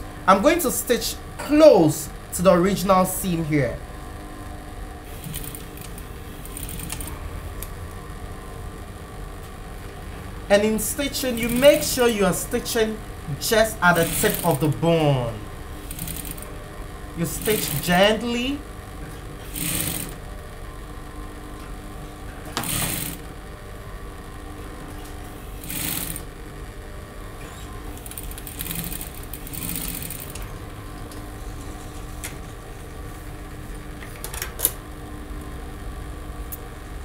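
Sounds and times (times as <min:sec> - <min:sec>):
motor hum: 0:00.0 - 0:37.0
sewing machine stitching: 0:05.1 - 0:07.2, 0:13.9 - 0:14.7, 0:15.8 - 0:16.5, 0:17.2 - 0:18.0, 0:19.4 - 0:20.2, 0:22.5 - 0:23.3, 0:25.6 - 0:26.3, 0:27.4 - 0:30.6.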